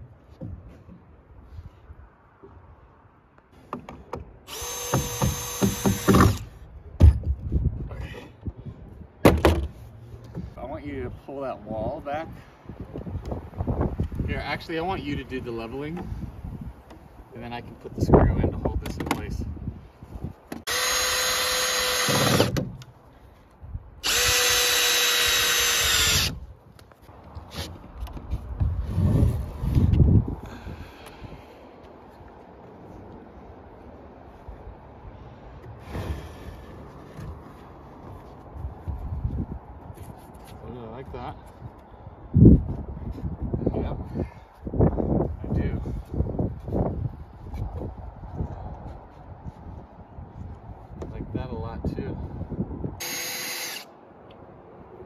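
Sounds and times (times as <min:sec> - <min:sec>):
sharp wooden knocks: 0:03.6 - 0:06.4, 0:09.2 - 0:10.5
cordless drill driving a screw: 0:04.5 - 0:06.5, 0:20.7 - 0:22.6, 0:24.0 - 0:26.4, 0:53.0 - 0:53.9.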